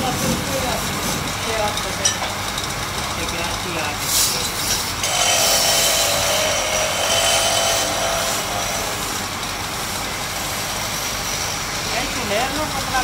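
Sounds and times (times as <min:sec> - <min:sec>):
wood lathe running: 0:04.9 - 0:13.0.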